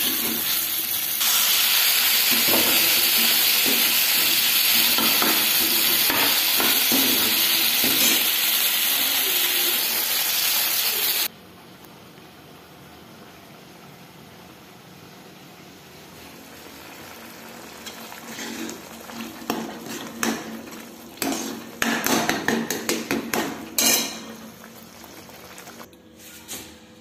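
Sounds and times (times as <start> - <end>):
steel ladle scraping a pan: 17.8 - 21.8, 23.7 - 24.5.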